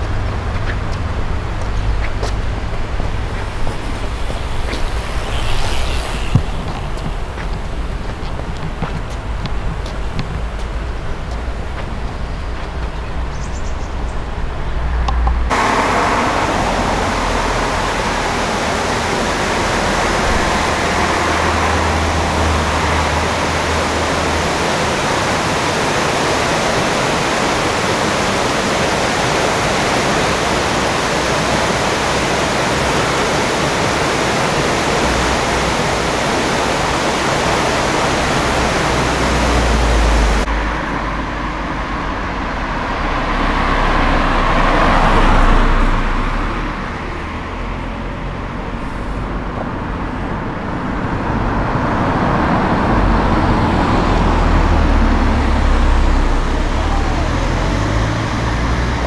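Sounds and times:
car driving past: 0.0 - 9.4, 14.8 - 25.8, 37.4 - 50.2, 50.9 - 59.0
steady rushing noise: 0.0 - 59.0.

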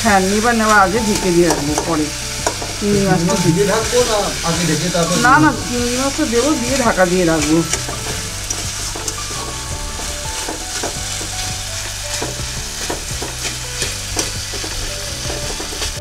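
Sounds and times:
vegetables sizzling in oil: 0.0 - 16.0
metal spatula scraping pan: 0.6 - 11.4.

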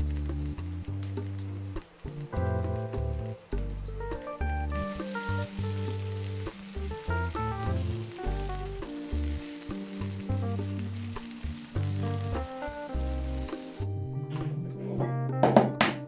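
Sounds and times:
potatoes sizzling in oil: 0.0 - 13.9
spatula turning food in pan: 0.0 - 13.9
background music with bass line: 0.0 - 16.0.

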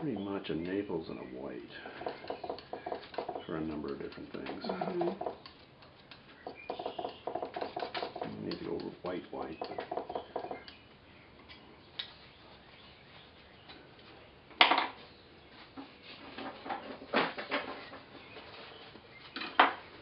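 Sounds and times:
tools clinking and knocking: 2.0 - 10.8.

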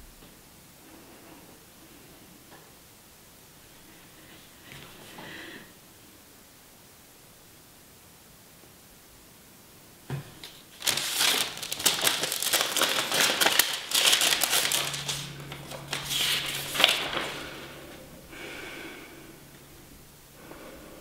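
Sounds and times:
paper crumpling: 10.4 - 18.0.

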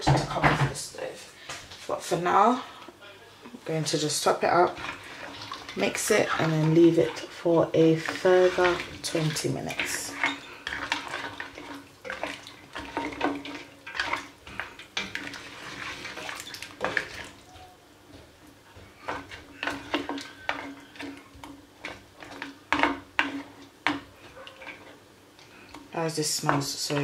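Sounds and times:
spoon stirring and knocking a pot: 4.2 - 25.0
water pouring into a pot: 15.0 - 17.4.

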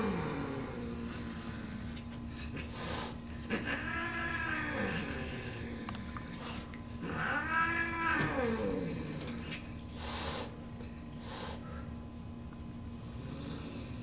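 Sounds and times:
cat hissing: 2.4 - 5.6, 6.3 - 10.6, 11.2 - 11.8
cat yowling: 3.5 - 5.4, 7.0 - 8.9.

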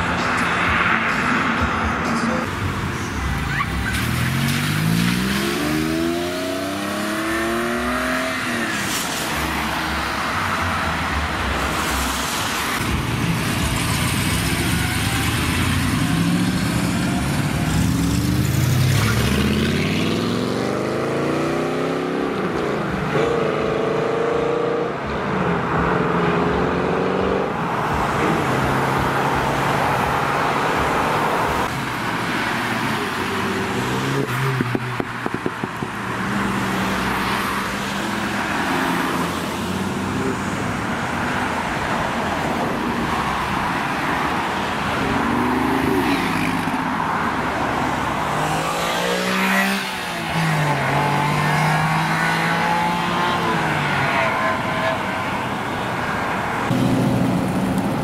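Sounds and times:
car engines accelerating: 0.0 - 58.0
tyre and road noise: 0.0 - 58.0.

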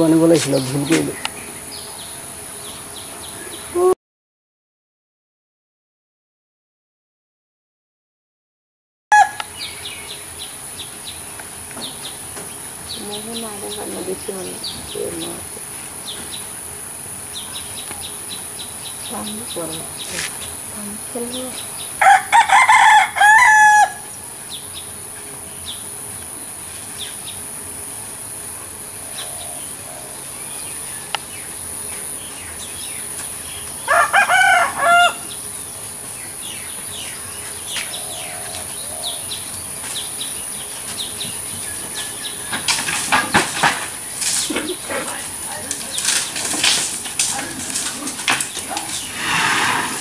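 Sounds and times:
rooster crowing: 9.1 - 9.5, 22.0 - 24.1, 33.8 - 35.4
high-pitched insect buzz: 9.1 - 43.1
quick run of sharp sounds: 47.7 - 50.0.

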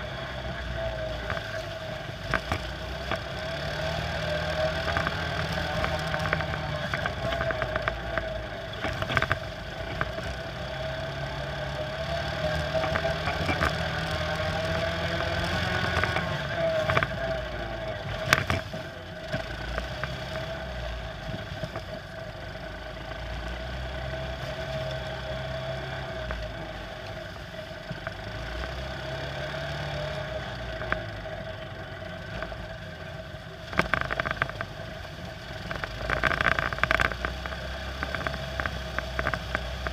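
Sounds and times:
quad bike engine running: 0.0 - 39.9.

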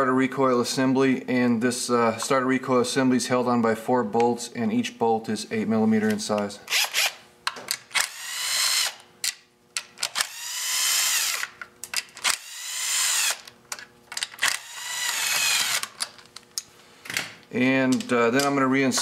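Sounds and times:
cordless drill running: 6.7 - 7.2, 8.0 - 9.0, 10.1 - 11.6, 12.2 - 13.6, 14.4 - 16.0.

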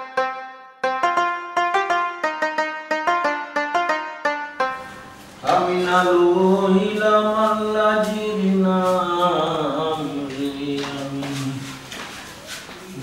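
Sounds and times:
person singing long notes: 4.7 - 11.7.

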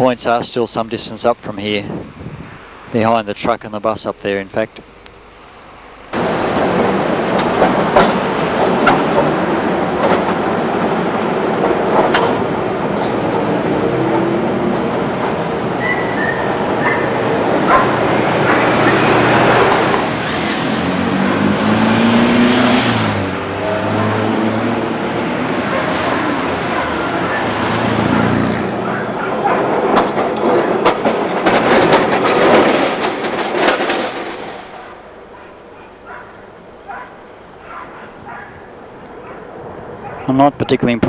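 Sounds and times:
street traffic noise: 0.0 - 41.0
tram passing: 5.3 - 41.0
tram wheels clattering over track: 6.1 - 36.7.

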